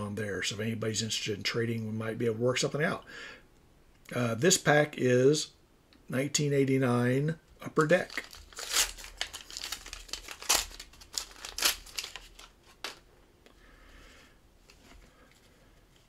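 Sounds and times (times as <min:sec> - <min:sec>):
foil wrapper tearing and crinkling: 0:07.8 - 0:13.0.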